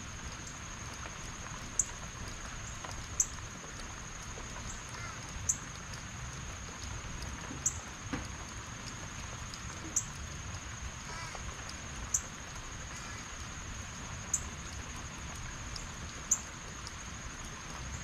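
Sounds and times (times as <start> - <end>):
rain falling: 0.0 - 18.0.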